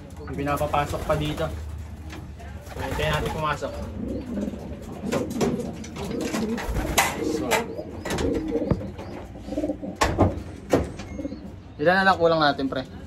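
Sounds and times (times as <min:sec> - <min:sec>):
pigeons cooing: 0:02.8 - 0:11.8.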